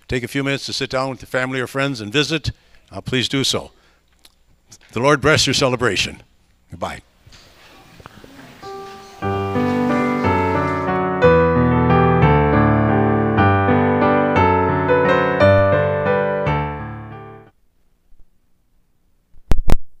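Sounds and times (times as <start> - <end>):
piano chords: 8.2 - 17.5.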